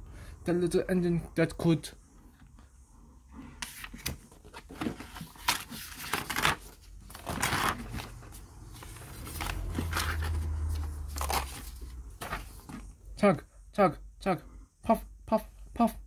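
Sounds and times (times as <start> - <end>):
book pages rustling: 3.5 - 13.0.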